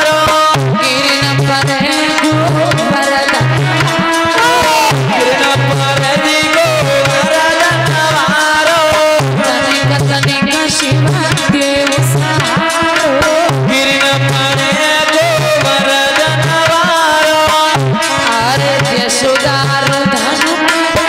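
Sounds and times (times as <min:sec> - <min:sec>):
hand drum rhythm: 0:00.0 - 0:21.0
sustained melody notes: 0:01.6 - 0:17.1.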